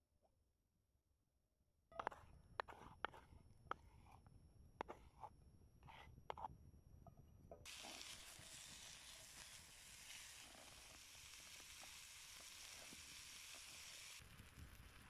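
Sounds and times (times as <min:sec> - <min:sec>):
bacon sizzling in a frying pan: 0:07.7 - 0:15.0.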